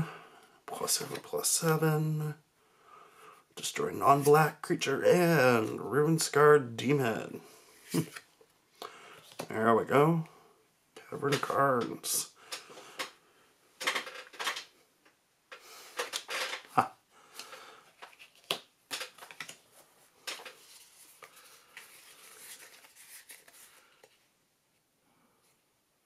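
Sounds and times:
cards clicking and rustling: 7.9 - 8.3, 9.1 - 9.5, 13.8 - 14.7, 15.8 - 24.2.

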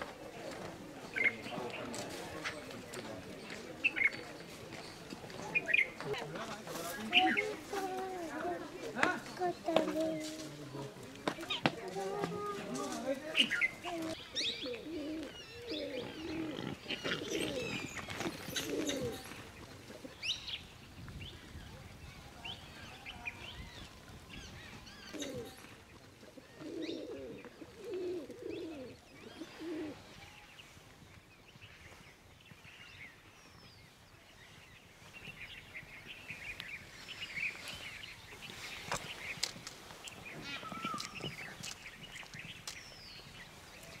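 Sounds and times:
doves cooing: 0.0 - 20.4, 23.9 - 30.4, 38.5 - 42.5
small birds chirping: 0.4 - 44.0.

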